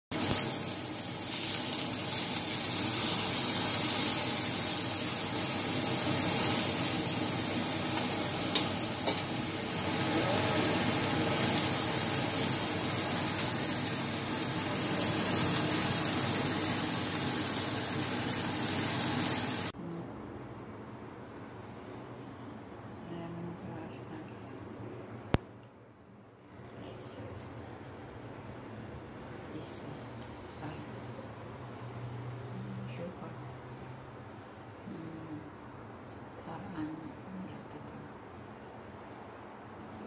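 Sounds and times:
pork chop sizzling in oil: 0.1s - 19.7s
metal tongs clicking on pan: 8.5s - 9.3s.

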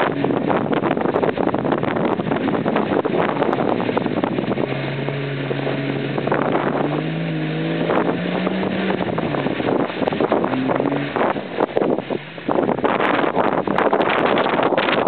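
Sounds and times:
mud and water splashing: 0.0s - 15.0s
tyres churning through mud: 0.0s - 15.0s
car engine pulling under load: 2.4s - 14.2s.

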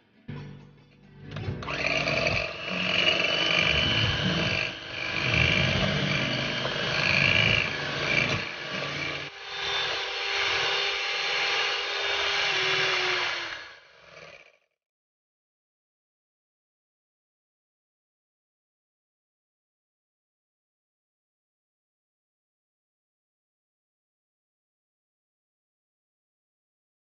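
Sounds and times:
electric hand mixer whipping cream: 1.6s - 14.7s.

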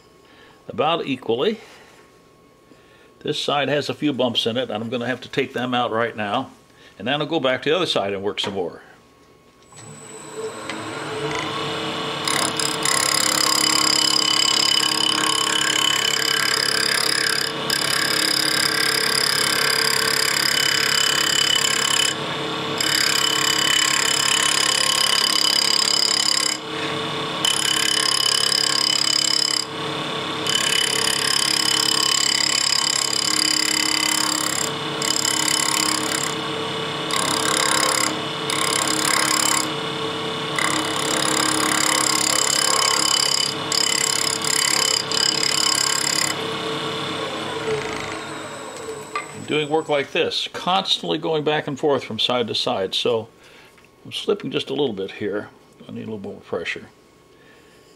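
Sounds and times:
wood lathe motor humming: 9.7s - 50.2s
turning tool cutting wood: 9.7s - 50.3s.

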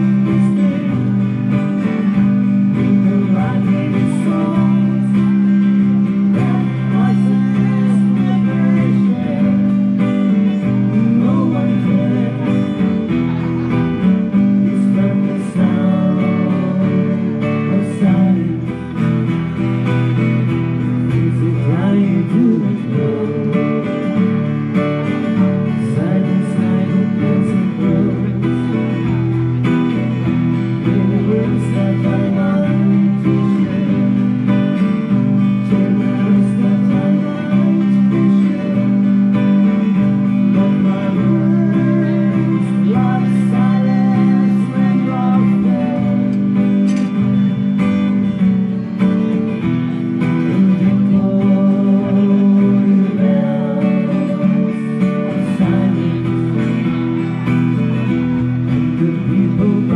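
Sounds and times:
acoustic guitar strummed and picked: 0.0s - 59.9s.

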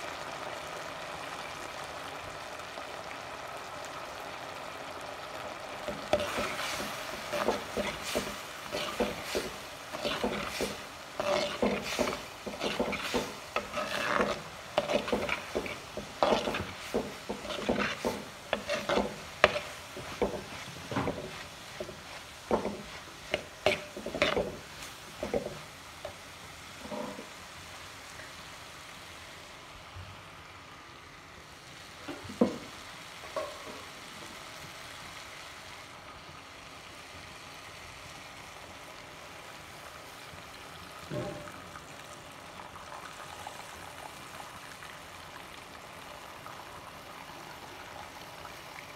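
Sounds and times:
low sizzle: 0.0s - 48.9s
spatula scraping pot: 5.9s - 25.6s, 26.8s - 27.3s.

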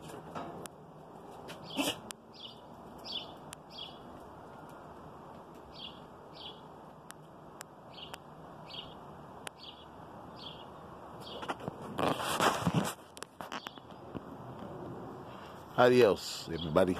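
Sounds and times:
small bird chirping: 1.6s - 4.8s, 5.7s - 6.7s, 7.9s - 11.5s, 13.5s - 14.1s.

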